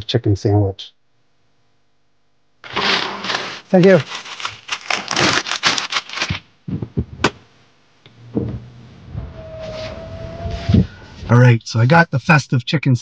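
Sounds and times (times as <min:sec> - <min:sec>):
paper bag rustling: 0:02.6 - 0:06.5.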